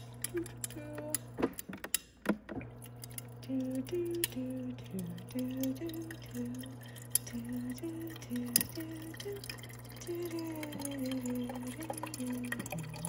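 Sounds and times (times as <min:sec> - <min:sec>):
clicks and knocks: 0:00.0 - 0:03.3
low hum: 0:02.5 - 0:13.0
water running into metal bottle: 0:02.5 - 0:13.0.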